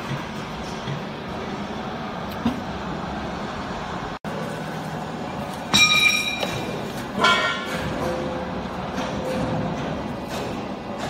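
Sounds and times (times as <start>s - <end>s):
metallic clank and ring: 5.7s - 8.2s.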